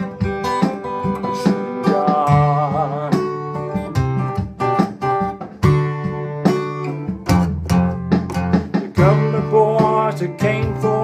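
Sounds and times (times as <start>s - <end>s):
acoustic guitar picked and strummed: 0.0s - 11.0s.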